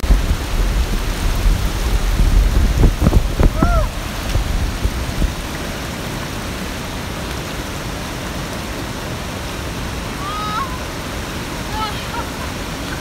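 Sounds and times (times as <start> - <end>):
river rushing over rapids: 0.0 - 13.0.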